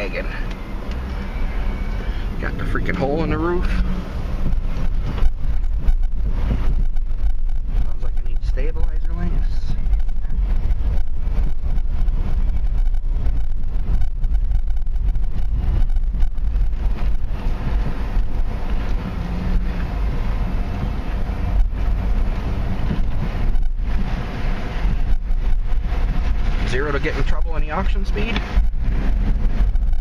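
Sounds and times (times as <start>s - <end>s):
car engine: 0.0s - 30.0s
road noise: 0.0s - 30.0s
suspension knocks: 2.8s - 26.7s.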